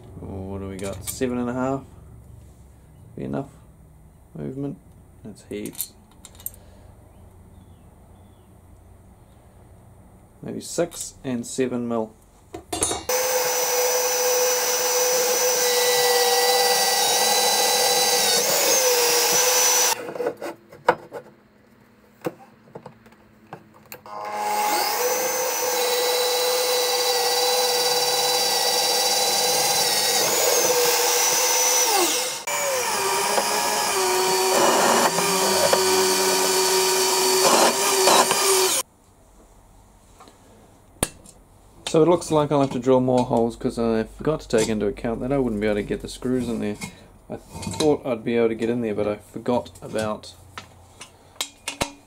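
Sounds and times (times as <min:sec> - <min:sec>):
drill press whining: 0:13.1 - 0:20.0, 0:24.1 - 0:38.8.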